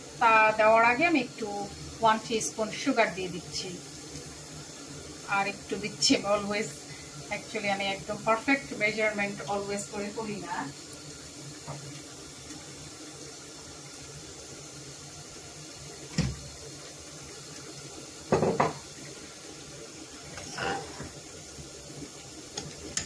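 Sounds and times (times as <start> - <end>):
food simmering bubbling hiss: 0.0 - 23.0
knocks in pan: 16.2 - 16.4, 18.3 - 18.9.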